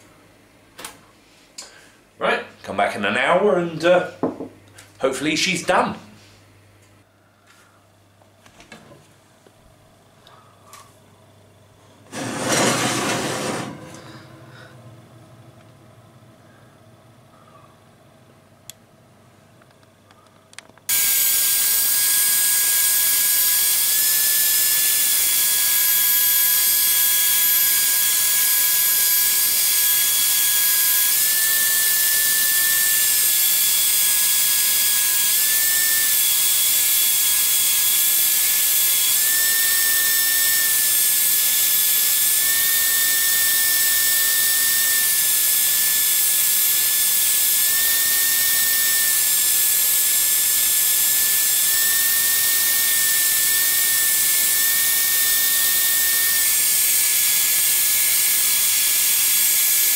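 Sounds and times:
belt sander grinding steel: 0:12.1 - 0:14.2, 0:20.9 - 0:59.9.

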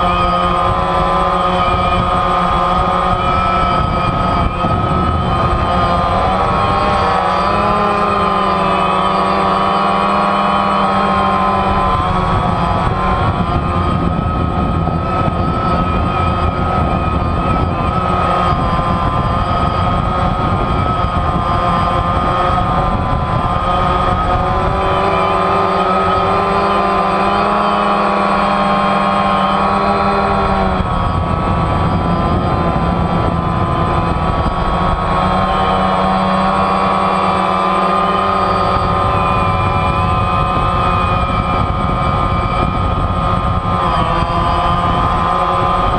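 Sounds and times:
drone propellers whining: 0:00.0 - 0:45.9.

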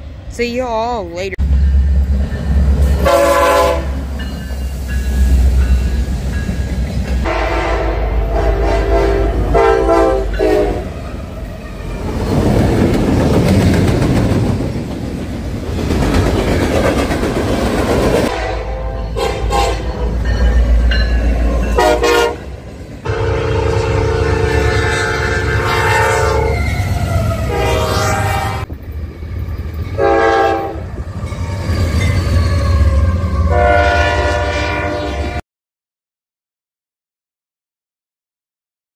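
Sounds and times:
locomotive air horn blasts: 0:03.0 - 0:04.0, 0:07.2 - 0:10.9, 0:18.3 - 0:20.2, 0:21.8 - 0:26.6, 0:27.5 - 0:28.7, 0:30.0 - 0:30.8, 0:33.5 - 0:35.4
wheels clattering on rails: 0:12.0 - 0:18.3.

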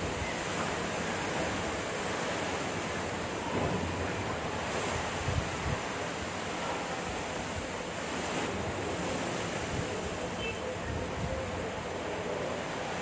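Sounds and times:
rain: 0:00.0 - 0:10.4, 0:11.0 - 0:13.0
wind rushing through foliage: 0:00.0 - 0:13.0
wind gusts buffeting microphone: 0:03.6 - 0:06.2.

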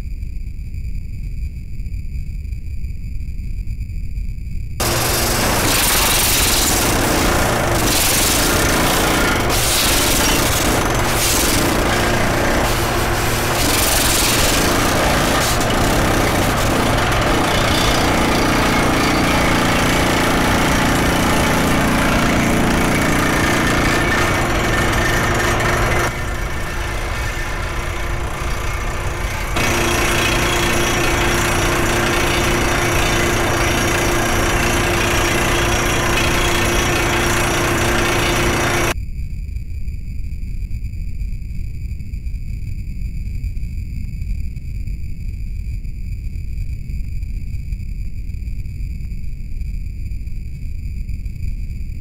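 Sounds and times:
heavy machinery droning: 0:04.8 - 0:39.0.

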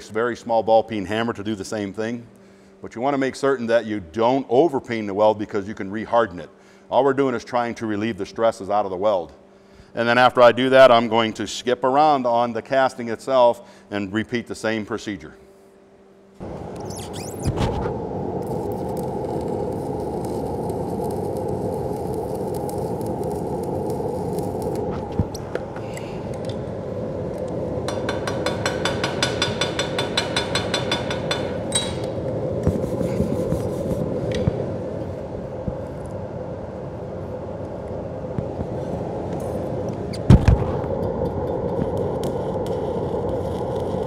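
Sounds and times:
fume extractor humming: 0:16.3 - 0:44.0
welding arc crackling: 0:16.4 - 0:36.1, 0:39.4 - 0:44.0.

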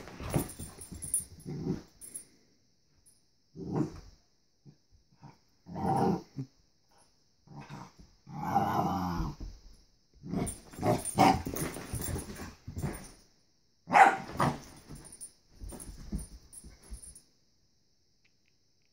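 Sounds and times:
young dog barking and growling: 0:10.3 - 0:13.0, 0:13.9 - 0:14.8
scuffling: 0:10.5 - 0:13.2, 0:14.2 - 0:17.2.

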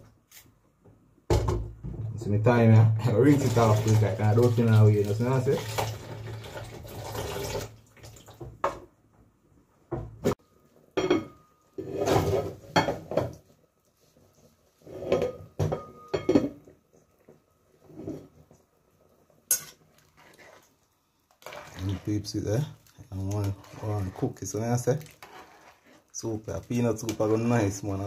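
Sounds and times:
tap water running: 0:03.1 - 0:08.7
metal utensil scraping a pot: 0:23.4 - 0:26.1.

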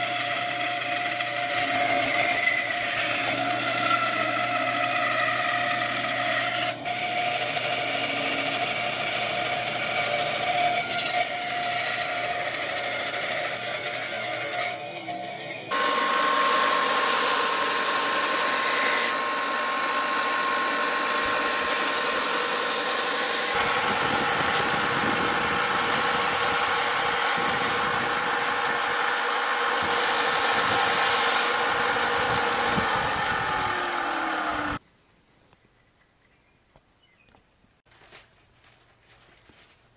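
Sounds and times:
sander motor hum: 0:00.0 - 0:34.8
wood sanding on belt: 0:15.7 - 0:34.8.

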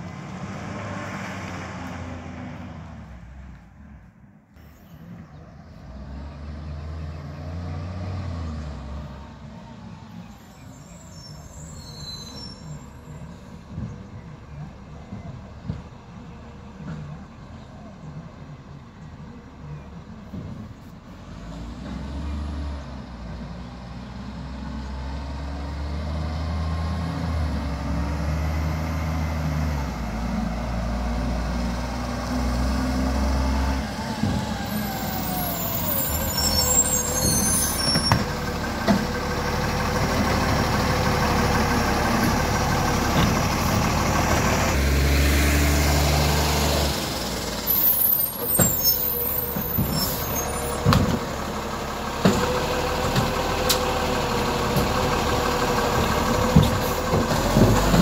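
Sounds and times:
garbage truck diesel engine: 0:00.0 - 0:58.0
air brakes hissing: 0:10.6 - 0:13.7, 0:34.7 - 0:38.3, 0:47.6 - 0:50.9.

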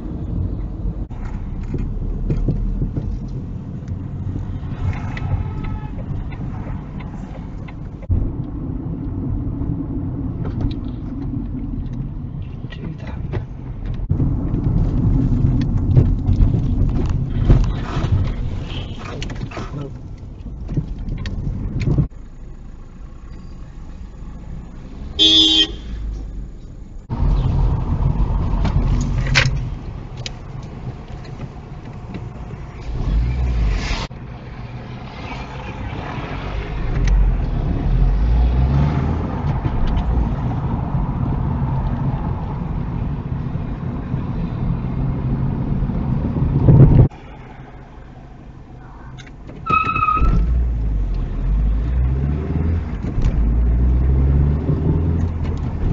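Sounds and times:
engine and road noise: 0:00.0 - 0:55.9
car horn: 0:05.2 - 0:06.2, 0:18.6 - 0:19.2, 0:25.2 - 0:26.1, 0:49.6 - 0:50.4.

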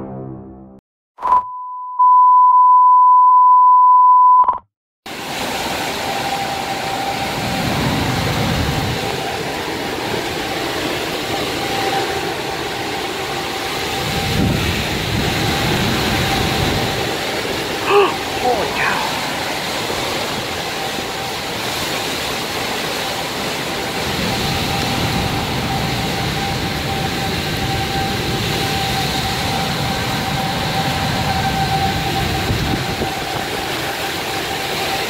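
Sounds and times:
steady beep tone: 0:01.2 - 0:04.6
strong wind rushing: 0:05.1 - 0:22.6, 0:23.4 - 0:34.0
heavy rain: 0:05.1 - 0:35.0.

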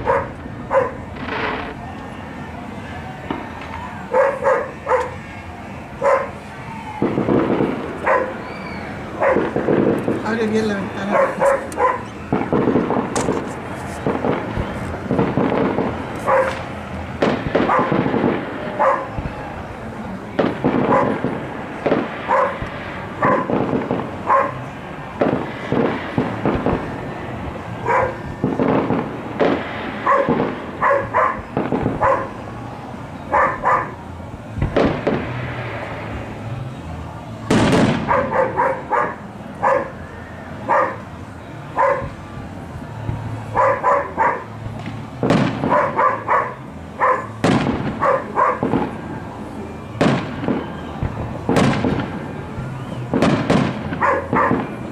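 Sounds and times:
dog barking: 0:00.0 - 0:01.0, 0:04.1 - 0:05.2, 0:06.0 - 0:06.4, 0:08.0 - 0:08.4, 0:09.2 - 0:09.6, 0:11.0 - 0:12.1, 0:16.2 - 0:16.6, 0:17.6 - 0:18.0, 0:18.8 - 0:19.2, 0:20.8 - 0:21.2, 0:22.3 - 0:22.6, 0:23.2 - 0:23.5, 0:24.2 - 0:24.6, 0:27.8 - 0:28.2, 0:30.0 - 0:32.3, 0:33.3 - 0:34.0, 0:38.0 - 0:40.0, 0:40.7 - 0:41.0, 0:41.8 - 0:42.1, 0:43.5 - 0:44.5, 0:45.6 - 0:47.4, 0:48.0 - 0:48.7, 0:54.0 - 0:54.7
fireworks banging: 0:00.0 - 0:54.9.

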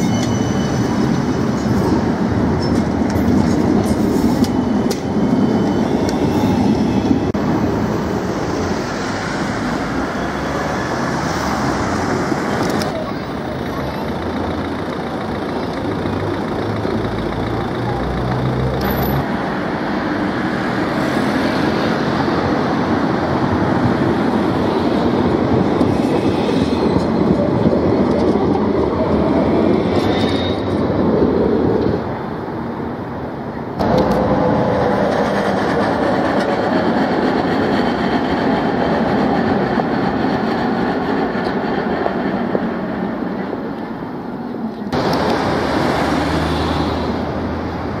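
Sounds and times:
faint high squeal: 0:00.0 - 0:01.2, 0:04.1 - 0:07.3
street noise: 0:00.0 - 0:48.0
tram wheels rumbling on rails: 0:00.0 - 0:48.0.

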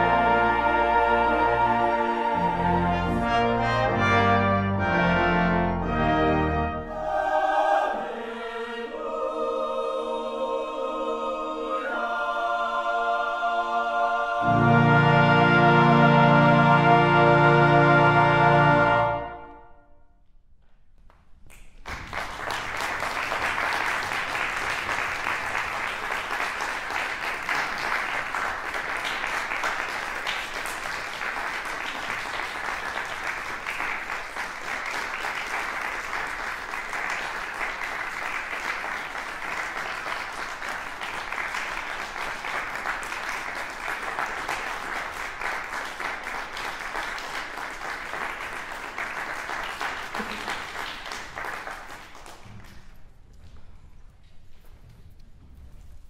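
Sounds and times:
choir and brass chord: 0:00.0 - 0:20.0
audience applauding: 0:21.6 - 0:53.0.

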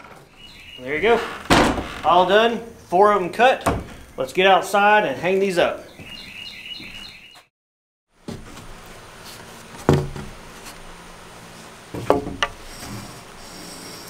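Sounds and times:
outdoor background noise: 0:00.0 - 0:07.5, 0:08.1 - 0:14.0
wooden board knocking: 0:09.9 - 0:10.3, 0:12.0 - 0:12.6.

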